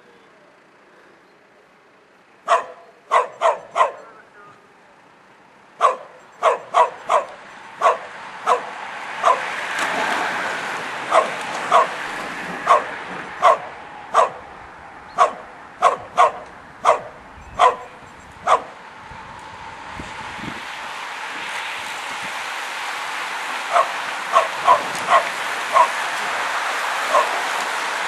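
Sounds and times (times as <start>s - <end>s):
dog barking: 2.4s - 4.2s, 5.8s - 9.5s, 11.1s - 12.0s, 12.6s - 14.5s, 15.1s - 18.8s, 23.7s - 26.0s, 27.0s - 27.4s.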